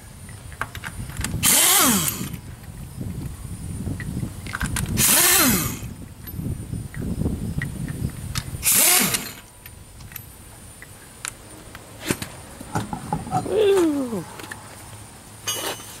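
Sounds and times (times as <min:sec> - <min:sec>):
impact wrench burst: 0:01.4 - 0:02.4, 0:05.0 - 0:06.0, 0:08.6 - 0:09.5.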